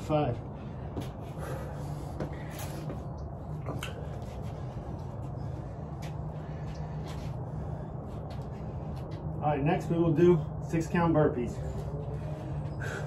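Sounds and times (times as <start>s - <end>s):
low hum: 0.0s - 13.0s.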